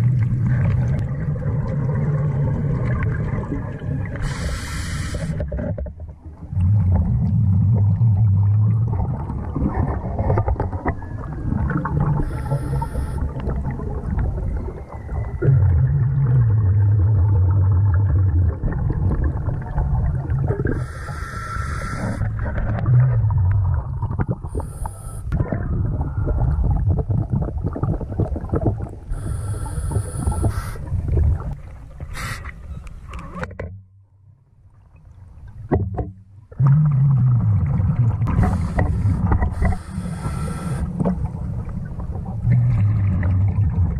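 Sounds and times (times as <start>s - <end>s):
bubbling exhales underwater: 0.0s - 31.6s, 36.5s - 43.9s
scuba regulator inhale hiss: 4.2s - 5.4s, 12.2s - 13.2s, 20.7s - 22.2s, 24.5s - 25.3s, 29.1s - 30.9s, 32.1s - 32.6s, 38.4s - 41.0s.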